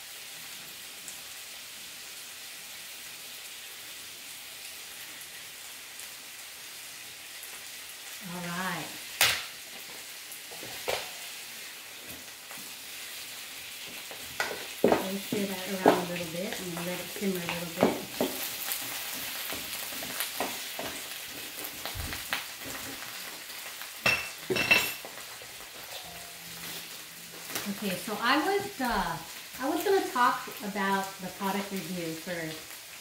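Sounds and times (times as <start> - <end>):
meat sizzling in a skillet: 0.0 - 33.0.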